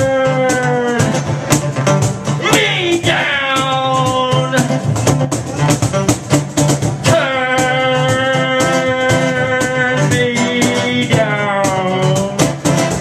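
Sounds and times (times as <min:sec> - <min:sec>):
beatboxing into microphone: 0:00.0 - 0:13.0
electric guitar: 0:00.0 - 0:13.0.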